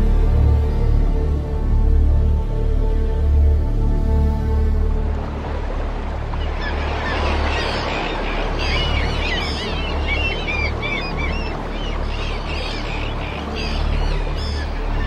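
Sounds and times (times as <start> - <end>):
gulls calling: 6.0 - 15.0.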